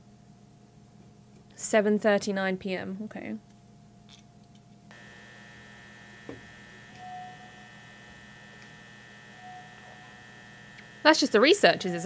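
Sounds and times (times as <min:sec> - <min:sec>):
fluorescent lights humming: 0:03.4 - 0:12.0.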